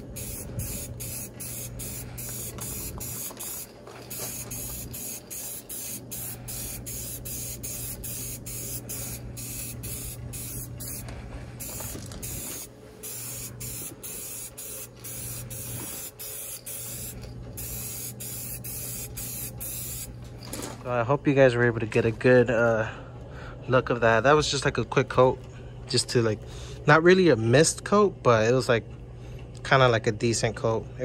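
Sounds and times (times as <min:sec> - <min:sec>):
spray paint can hissing: 0:00.0 - 0:20.1.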